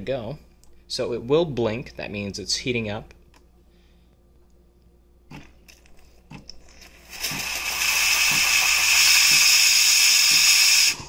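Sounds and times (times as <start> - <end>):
espresso steam wand hissing: 7.0 - 11.0.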